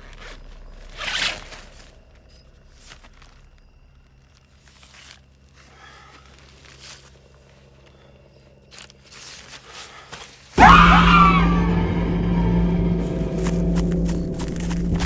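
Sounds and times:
footsteps on forest floor: 1.5s - 15.0s
horror music sting: 10.6s - 15.0s.

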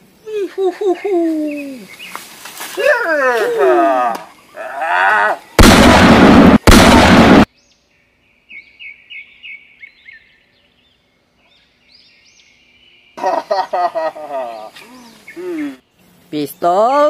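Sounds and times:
small bird chirping: 1.0s - 2.3s, 14.6s - 17.0s
gunshot blasts: 5.6s - 7.5s.

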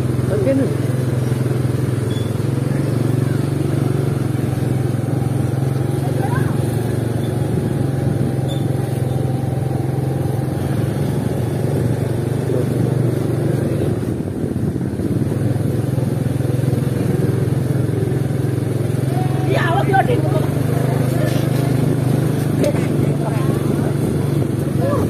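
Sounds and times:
busy street bustle: 0.0s - 25.0s
motorcycle engine running: 0.0s - 25.0s.

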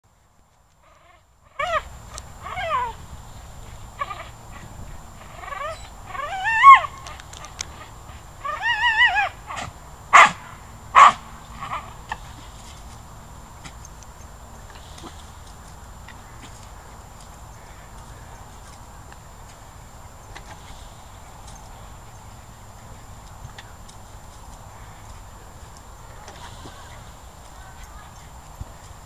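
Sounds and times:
small dog yelping and whining: 1.6s - 3.0s, 5.2s - 7.2s, 8.4s - 10.3s
dog barking sharply: 10.1s - 10.4s, 11.0s - 11.8s.

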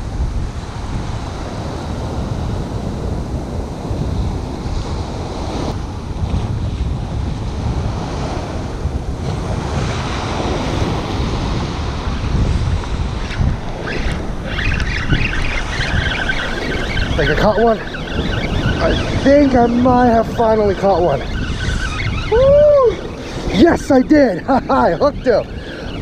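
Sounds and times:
ocean surf washing up beach: 0.0s - 26.0s
wind buffeting microphone: 0.0s - 26.0s.

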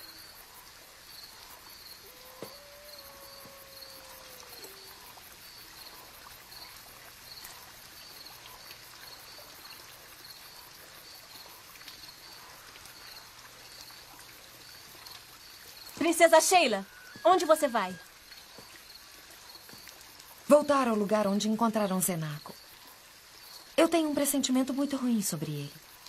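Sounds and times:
crickets chirping: 0.0s - 26.0s
long wailing tone: 2.0s - 5.2s.

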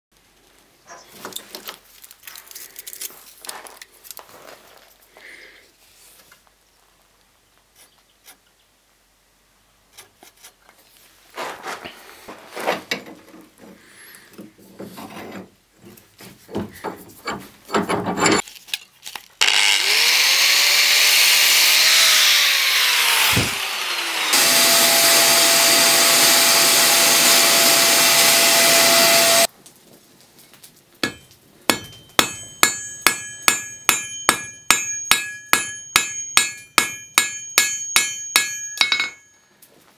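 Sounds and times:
power cutting tool whine: 19.4s - 29.5s
hammer blows on anvil: 31.0s - 39.3s.

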